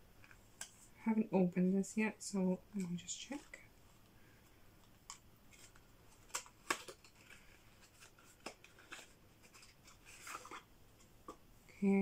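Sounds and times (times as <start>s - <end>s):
cardboard box rustling: 5.5s - 10.7s.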